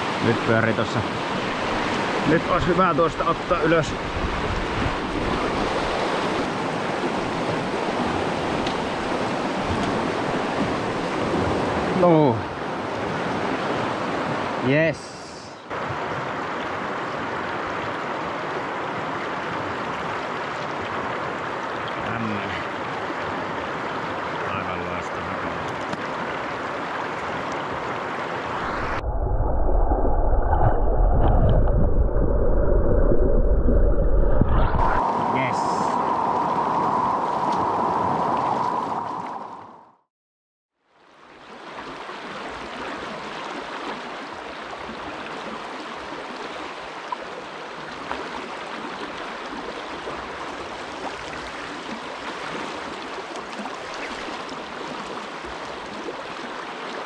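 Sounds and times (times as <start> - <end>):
rushing water of river rapid: 0.0 - 29.0, 34.8 - 39.6, 41.0 - 57.0
deep muffled rumble: 28.7 - 35.0
river rapids rushing: 34.9 - 36.6.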